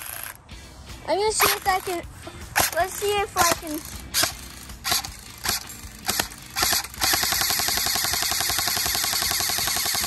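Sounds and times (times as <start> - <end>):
airsoft gun firing: 3.4 - 10.0.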